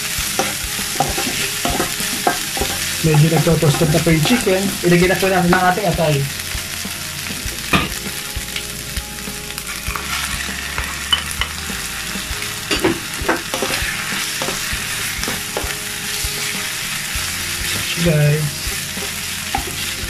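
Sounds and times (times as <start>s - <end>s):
spatula scraping and tapping pan: 0.0s - 6.3s, 9.7s - 11.9s, 12.7s - 18.0s, 18.6s - 20.0s
food sizzling in hot oil: 0.0s - 20.0s.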